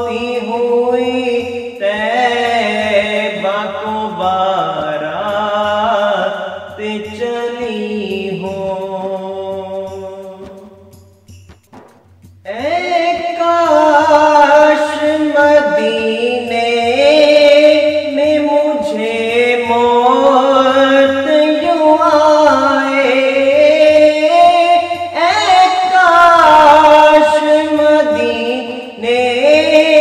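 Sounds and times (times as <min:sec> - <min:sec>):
man singing devotional song: 0:00.0 - 0:11.2, 0:12.5 - 0:30.0
layered vocal lines: 0:12.5 - 0:30.0.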